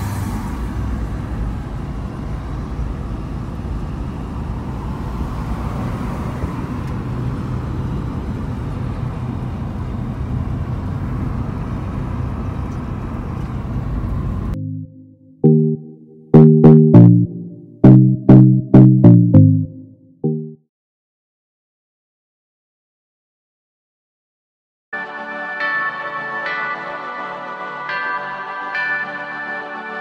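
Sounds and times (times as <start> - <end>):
car engine and road noise: 0.0 - 14.9.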